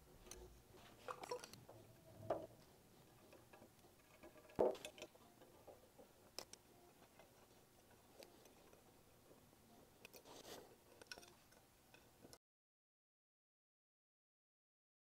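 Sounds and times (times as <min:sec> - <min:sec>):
plastic cups set down on mat: 0:04.6 - 0:05.1.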